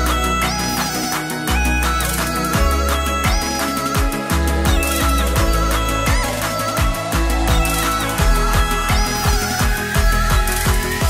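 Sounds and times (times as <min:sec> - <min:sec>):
electronic music: 0:00.0 - 0:11.0
deep pitch-dropping bass hits: 0:04.7 - 0:11.0.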